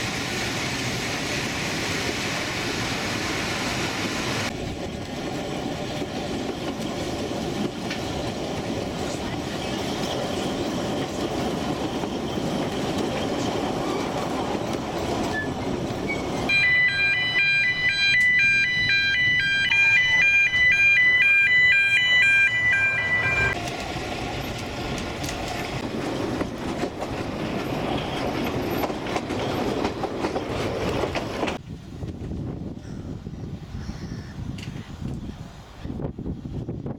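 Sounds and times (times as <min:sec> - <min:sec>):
train rumble and rail clatter: 0:00.0 - 0:36.9
two-tone crossing alarm: 0:16.4 - 0:23.6.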